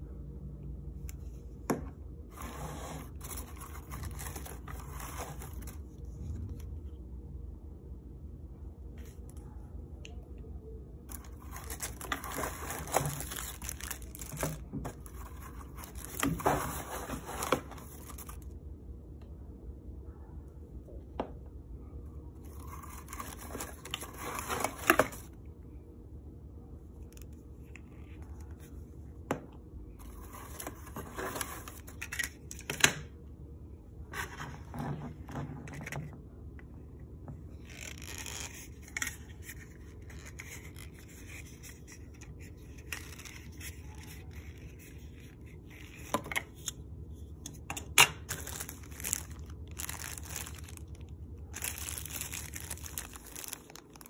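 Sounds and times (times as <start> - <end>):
paper and cardboard rustling: 2.2 - 6.5, 11.1 - 18.4, 22.5 - 25.3, 30.0 - 32.3, 48.3 - 54.0.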